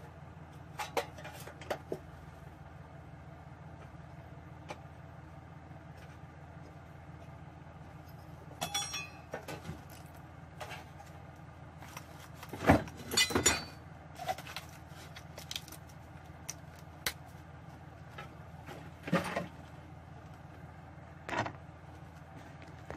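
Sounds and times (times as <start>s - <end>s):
steady low hum: 0.0s - 22.9s
metal panel and tools clinking: 8.6s - 9.6s, 12.8s - 13.8s.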